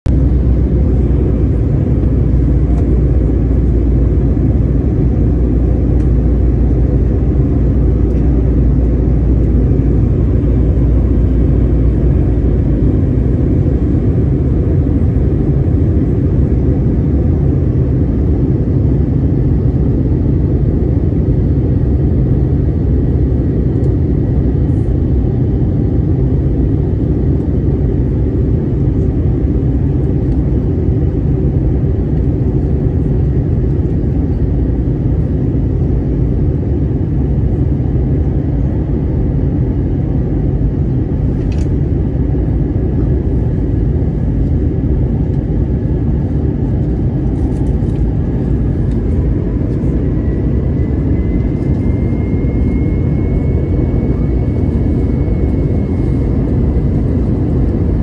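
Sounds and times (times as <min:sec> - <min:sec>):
airliner cabin engine rumble: 0:00.0 - 0:58.0.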